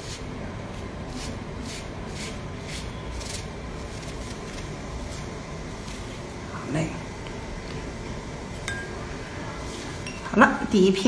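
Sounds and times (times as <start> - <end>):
brush swishing across paper: 0.0 - 6.4
low background hum: 0.0 - 11.0.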